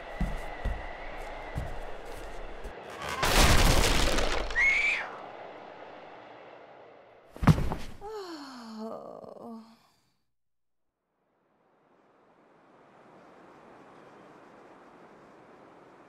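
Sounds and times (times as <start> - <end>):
loud noisy crash: 2.9 - 4.8.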